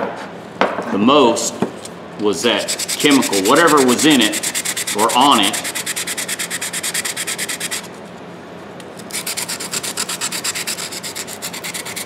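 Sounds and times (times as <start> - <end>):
sandpaper rubbing on metal: 2.6 - 7.9, 9.1 - 12.0.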